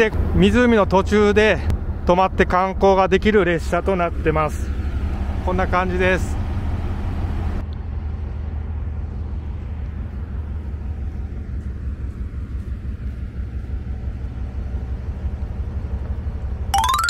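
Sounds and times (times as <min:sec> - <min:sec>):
diesel locomotive idling: 0:03.4 - 0:16.7.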